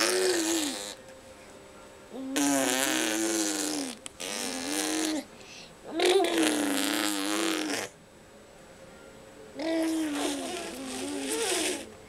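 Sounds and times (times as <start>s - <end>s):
toddler making car engine noise: 0.0s - 1.0s, 5.9s - 7.8s, 9.6s - 11.9s.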